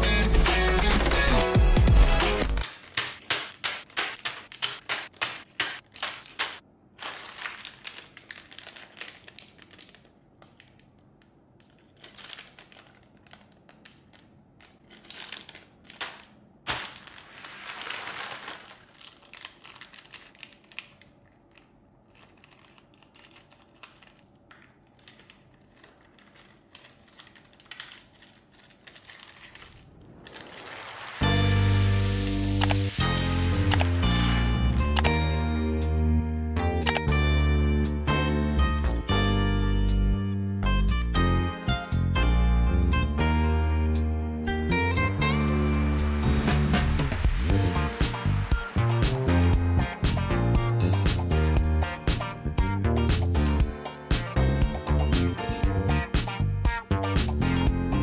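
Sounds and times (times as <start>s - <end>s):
packaging crinkling and rustling: 2.4s - 35.1s.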